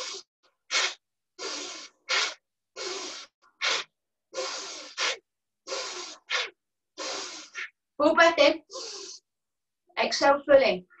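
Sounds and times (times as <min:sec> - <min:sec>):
woman breathing forcefully through nose: 0:00.0 - 0:07.8, 0:08.7 - 0:09.3.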